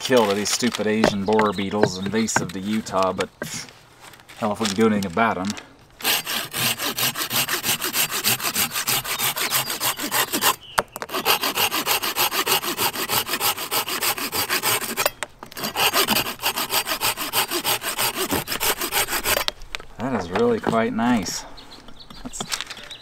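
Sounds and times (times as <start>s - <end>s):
hand saw cutting branch: 6.0s - 19.5s.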